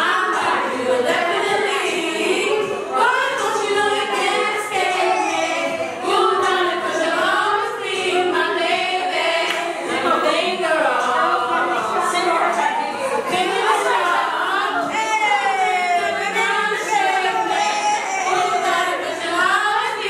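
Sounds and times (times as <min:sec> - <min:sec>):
women singing together: 0:00.0 - 0:20.0.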